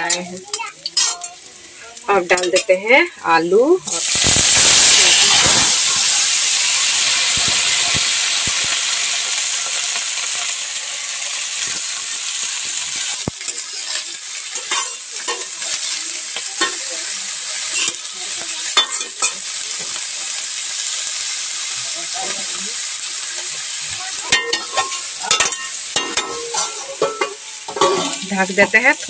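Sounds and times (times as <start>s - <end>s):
vegetables sizzling in hot oil: 0.0s - 29.0s
metal spatula scraping a pan: 1.0s - 1.4s, 13.3s - 17.0s, 17.7s - 18.0s, 24.2s - 28.9s.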